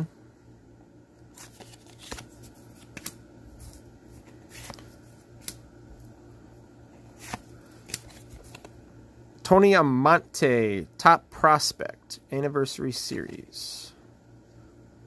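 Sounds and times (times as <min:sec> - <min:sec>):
paper rustling: 0:01.3 - 0:05.6, 0:07.1 - 0:08.7
trading cards flicking: 0:01.4 - 0:03.8, 0:07.2 - 0:08.7.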